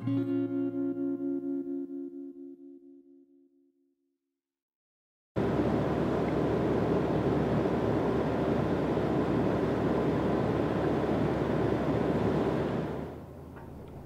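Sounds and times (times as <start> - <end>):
boat engine running: 5.4 - 14.0.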